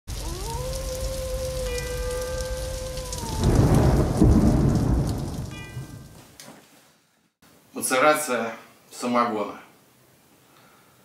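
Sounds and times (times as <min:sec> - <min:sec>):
rolling thunder: 0:00.1 - 0:06.2
steady rain: 0:00.1 - 0:06.8.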